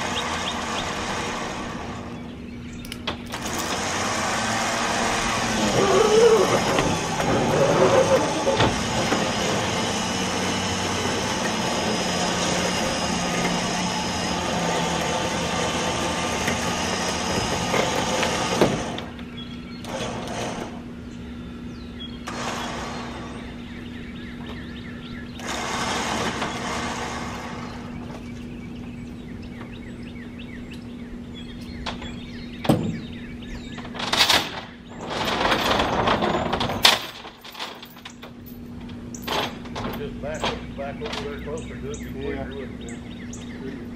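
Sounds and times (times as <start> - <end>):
powered hoist running: 0.0 - 2.4, 3.1 - 21.2, 22.2 - 29.9.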